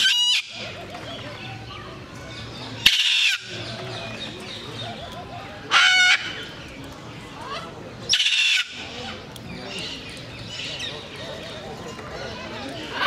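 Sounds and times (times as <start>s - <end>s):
macaw squawk: 2.8s - 3.6s, 5.7s - 6.4s, 8.1s - 9.0s.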